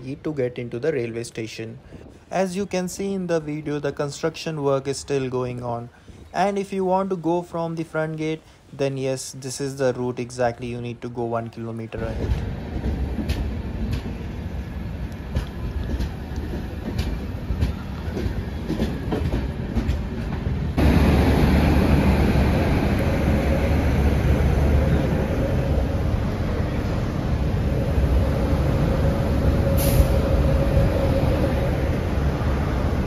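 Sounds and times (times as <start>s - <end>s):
train wheels clicking on rail joints: 11.5s - 20.8s
locomotive rumble and hum: 12.0s - 33.0s
short hiss: 29.8s - 30.2s.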